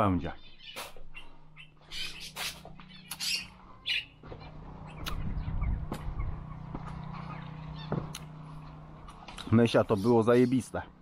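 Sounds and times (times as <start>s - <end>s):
poultry squawking: 0.4s - 9.0s
low hum: 0.5s - 11.0s.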